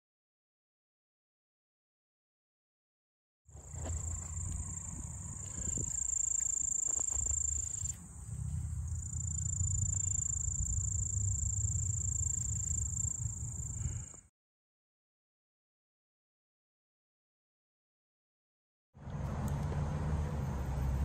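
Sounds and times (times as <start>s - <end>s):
low rumble: 3.6s - 6.2s, 7.2s - 14.2s
insects trilling: 3.6s - 14.2s.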